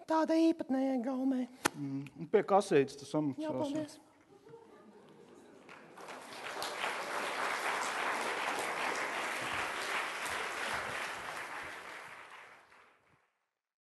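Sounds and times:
audience applauding: 0:05.4 - 0:13.2.

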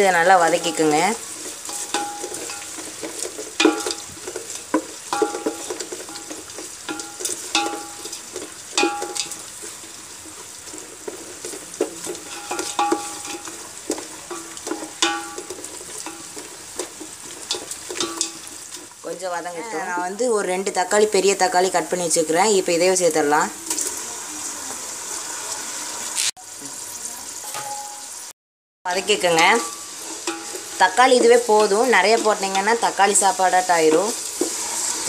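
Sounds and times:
onions sizzling in oil: 0:00.0 - 0:28.3, 0:28.9 - 0:35.0
ladle scraping and knocking pot: 0:00.3 - 0:19.0, 0:29.1 - 0:35.0.

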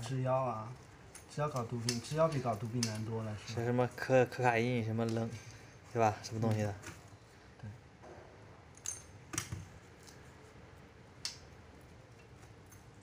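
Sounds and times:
scissors and pliers snipping wire: 0:01.1 - 0:03.2.

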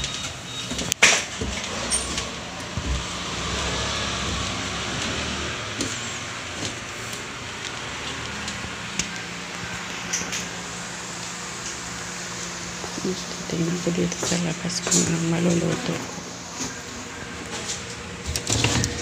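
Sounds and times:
footsteps on wooden stairs: 0:04.2 - 0:07.0.

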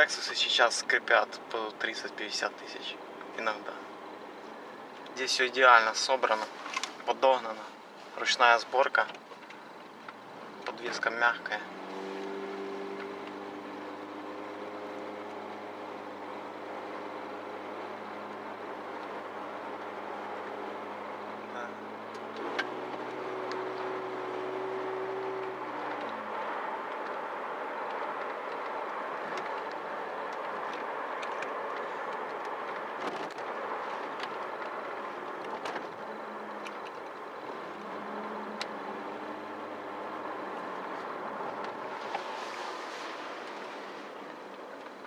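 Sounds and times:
tyre and road noise: 0:00.0 - 0:45.0
car engine humming: 0:00.8 - 0:08.1, 0:09.0 - 0:45.0
light clicks and knocks from bumps: 0:27.8 - 0:37.9.

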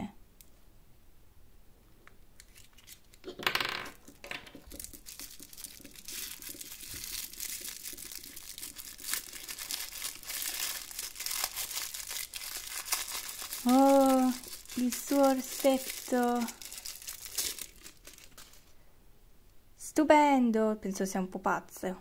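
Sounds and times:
wrapper crinkling: 0:02.4 - 0:18.8.

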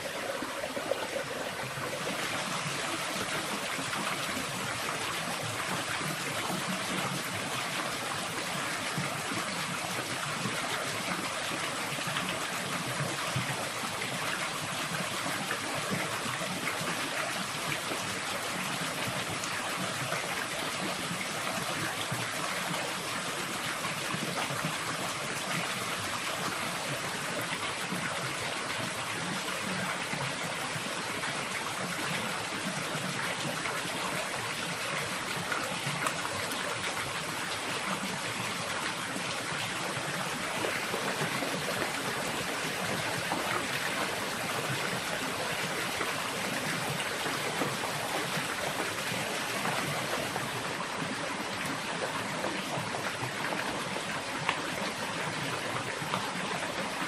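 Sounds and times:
rain falling on water: 0:00.0 - 0:57.0
stream running over rocks: 0:00.0 - 0:57.0.

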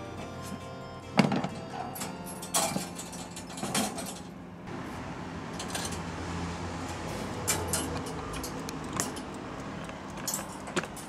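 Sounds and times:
wire cage rattling: 0:01.2 - 0:04.3, 0:05.6 - 0:06.1, 0:06.8 - 0:09.4, 0:10.0 - 0:11.0.

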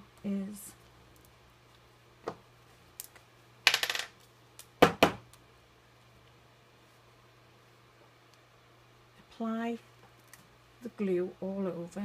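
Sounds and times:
objects clicking on tabletop: 0:03.0 - 0:04.1.

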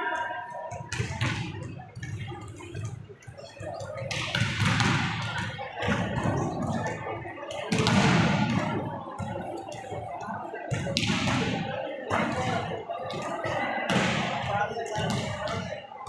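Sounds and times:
volleyballs spiked in echoing hall: 0:00.0 - 0:16.0
ball slaps and bounces: 0:03.9 - 0:06.6, 0:07.6 - 0:09.3.

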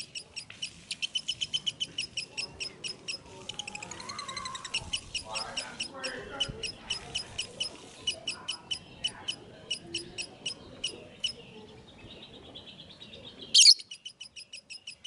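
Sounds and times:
lovebird chirping: 0:00.0 - 0:12.2, 0:12.8 - 0:15.0
harsh bird squawk: 0:13.6 - 0:15.0.

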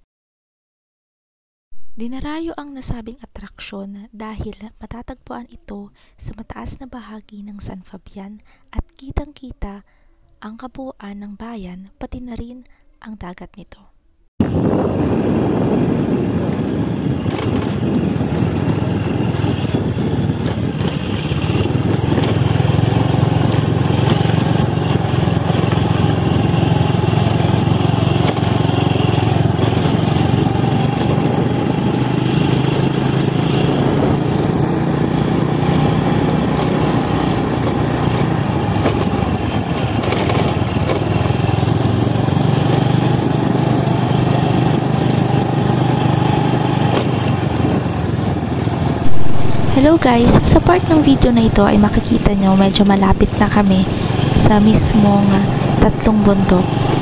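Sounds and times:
motorcycle engine running: 0:14.4 - 0:57.0.

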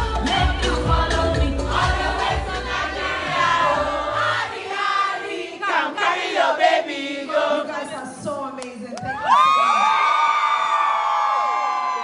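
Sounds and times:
bass-heavy beat: 0:00.0 - 0:02.7
people singing: 0:00.0 - 0:08.4.

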